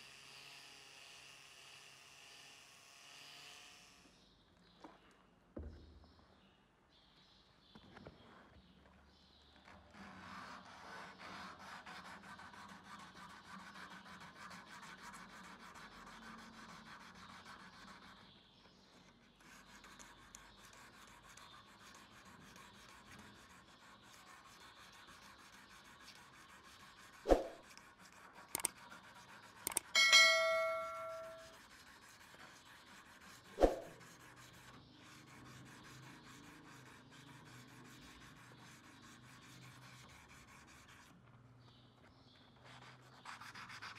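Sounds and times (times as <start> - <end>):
sandpaper scraping a steel blade: 9.9 - 18.3, 19.4 - 29.8, 31.0 - 41.1
sharp metallic knocks: 29.7 - 31.5
ringing metal ding: 29.9 - 31.6.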